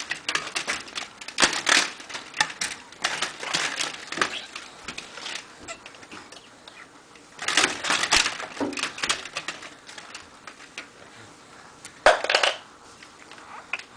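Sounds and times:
blind slats clattering: 0.0 - 6.5.

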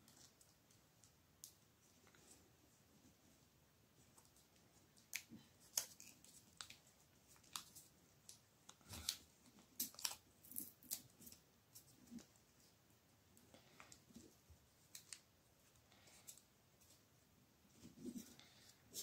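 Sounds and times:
paper crinkling and crackling: 4.1 - 12.3.

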